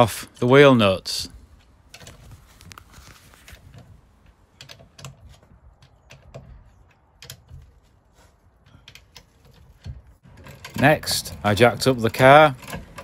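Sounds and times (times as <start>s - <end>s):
wheel brace clicking on wheel nuts: 3.4s - 13.0s.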